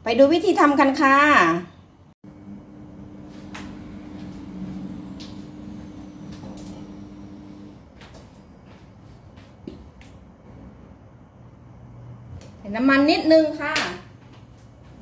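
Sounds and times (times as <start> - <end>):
low steady hum: 2.2 - 7.9.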